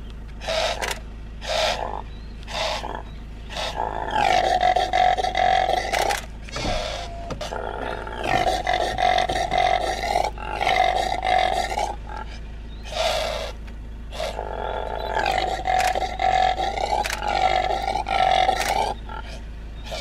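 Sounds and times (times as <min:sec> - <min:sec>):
impala calling: 0:00.4 - 0:20.0.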